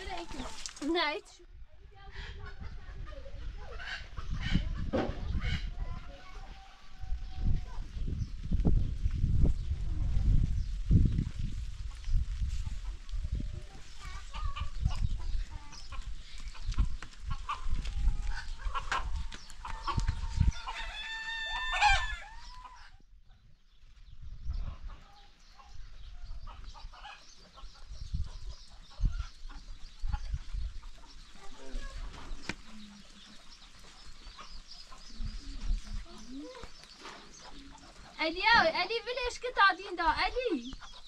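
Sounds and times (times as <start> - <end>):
chickens clucking: 2.2 - 7.9, 11.8 - 22.9, 24.5 - 39.0, 39.6 - 41.0
rooster crowing: 20.5 - 22.6.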